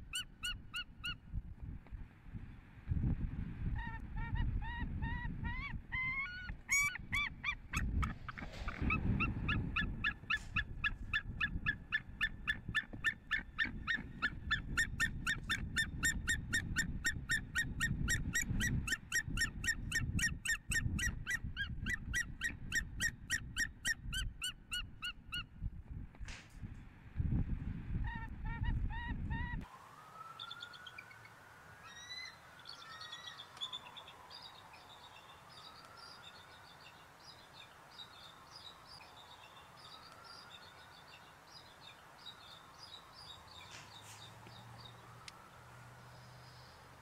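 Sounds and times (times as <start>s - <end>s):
eagles calling: 5.1s - 19.8s.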